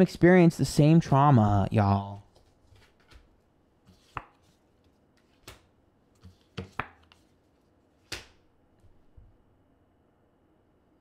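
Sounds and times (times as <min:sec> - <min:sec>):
cards slapped down by hand: 0:05.4 - 0:07.2, 0:08.0 - 0:08.4.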